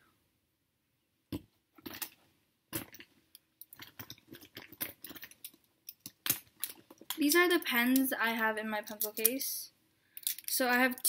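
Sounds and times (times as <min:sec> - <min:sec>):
pens and pencils rattling: 0:02.8 - 0:08.1, 0:08.8 - 0:09.5, 0:10.2 - 0:11.0.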